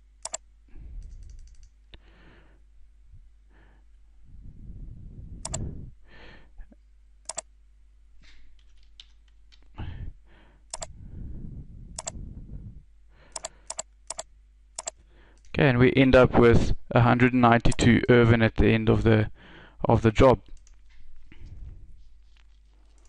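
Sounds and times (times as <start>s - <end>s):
computer mouse clicking: 0.2s - 0.4s, 1.0s - 1.7s, 5.4s - 5.6s, 7.3s - 7.5s, 10.7s - 10.9s, 12.0s - 12.2s, 13.3s - 15.5s
soft low rustling: 20.7s - 23.0s.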